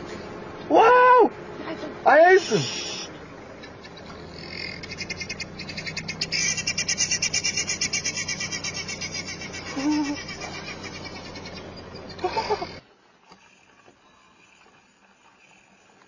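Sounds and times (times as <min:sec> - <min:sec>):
steady low hum: 0:00.0 - 0:16.0
rapid rhythmic bird chirping: 0:03.4 - 0:12.8.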